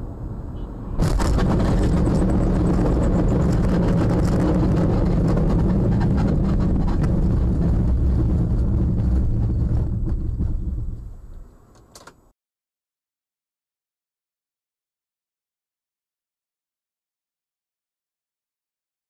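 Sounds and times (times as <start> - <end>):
car rumbling and rattling: 0.0 - 12.3
crackling and clattering: 1.0 - 12.1.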